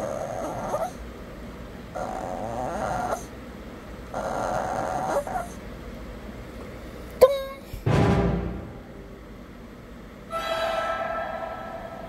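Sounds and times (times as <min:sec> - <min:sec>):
dog whining and moaning: 0:00.0 - 0:01.1, 0:01.9 - 0:03.4, 0:04.0 - 0:05.7.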